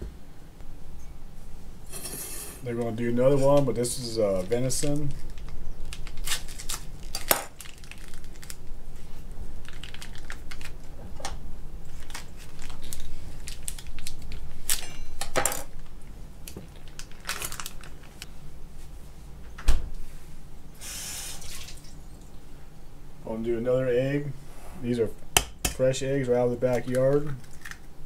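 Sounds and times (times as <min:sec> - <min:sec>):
plastic wrapping crinkling: 0:04.3 - 0:11.0, 0:11.9 - 0:18.3, 0:26.7 - 0:27.9.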